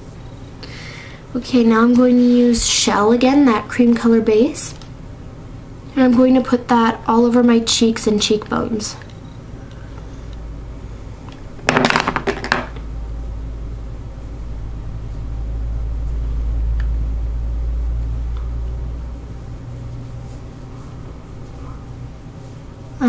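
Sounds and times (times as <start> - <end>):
low rumble: 12.8 - 19.9.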